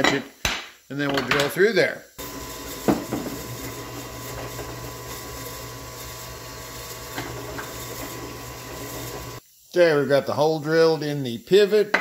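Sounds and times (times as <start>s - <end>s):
drill press motor hum: 2.2s - 9.4s.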